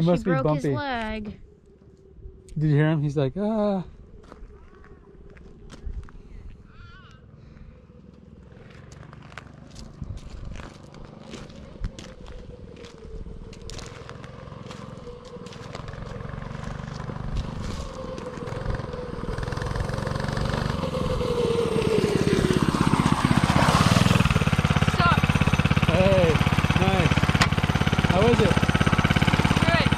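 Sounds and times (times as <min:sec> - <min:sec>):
mini bike engine approaching: 0:06.7 - 0:29.9.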